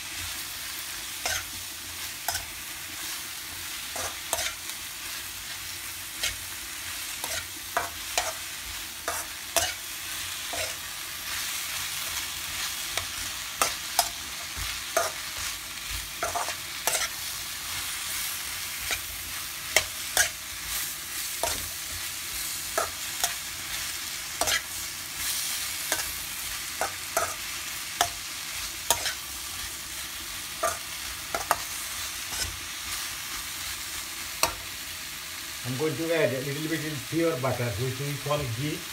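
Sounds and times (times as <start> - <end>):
vegetables sizzling in oil: 0.0 - 38.9
metal spoon scraping a pan: 1.2 - 1.6, 2.2 - 2.6, 3.9 - 4.7, 6.1 - 6.5, 7.1 - 11.4, 12.6 - 29.6, 30.5 - 32.6.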